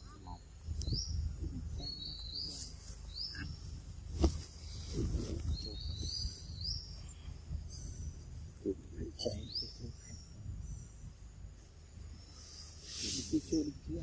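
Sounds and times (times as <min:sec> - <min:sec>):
forest ambience: 0:00.0 - 0:14.0.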